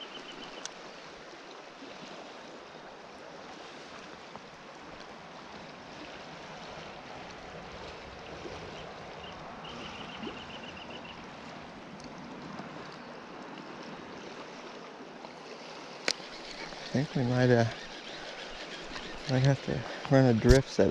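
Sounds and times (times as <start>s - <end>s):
river water rushing: 11.1s - 20.9s.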